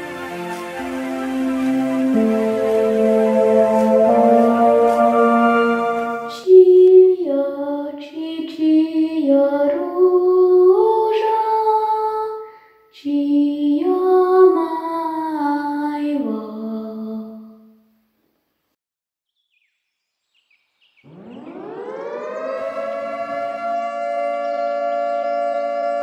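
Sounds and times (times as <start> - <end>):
held music chord: 0.0 - 6.5, 21.1 - 26.0
person singing slow melody: 0.0 - 17.6.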